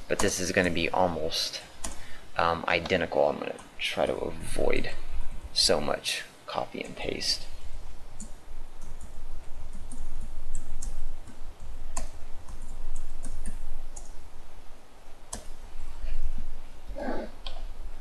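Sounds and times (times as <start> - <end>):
steady low rumble: 3.8 - 6.0.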